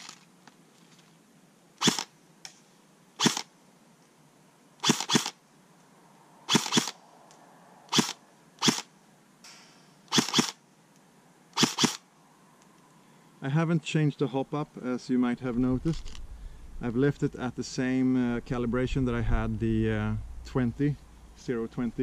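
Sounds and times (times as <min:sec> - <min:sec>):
airsoft rifle shots cracking: 0:01.8 - 0:02.1, 0:03.2 - 0:03.5, 0:04.8 - 0:05.4, 0:06.5 - 0:07.0, 0:07.9 - 0:08.9, 0:09.5 - 0:10.6, 0:11.6 - 0:12.0.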